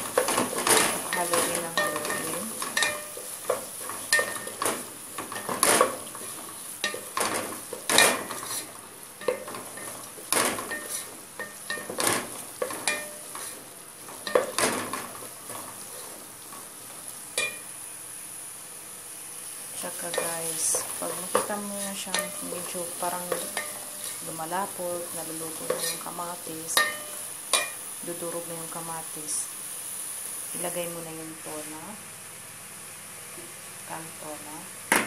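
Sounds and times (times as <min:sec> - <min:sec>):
frying sizzle: 0:00.0 - 0:35.0
wooden spatula scraping metal pot: 0:00.2 - 0:13.6.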